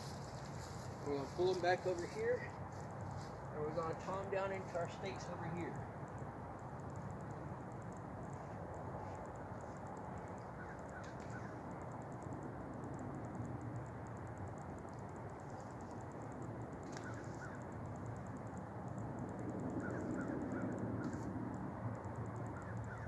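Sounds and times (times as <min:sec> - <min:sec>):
high-pitched ticking trills: 0:00.0 - 0:23.0
steady low rumble: 0:00.0 - 0:23.0
faint bird calls: 0:10.3 - 0:11.7, 0:16.8 - 0:17.8, 0:19.6 - 0:21.3, 0:22.4 - 0:23.0.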